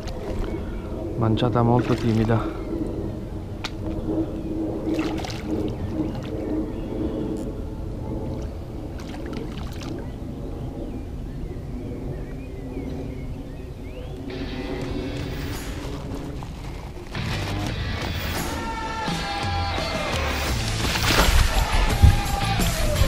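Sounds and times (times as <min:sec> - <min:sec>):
low rumble: 0:00.0 - 0:23.0
fish splashing at water surface: 0:04.9 - 0:06.3, 0:20.5 - 0:21.9
music: 0:17.1 - 0:23.0.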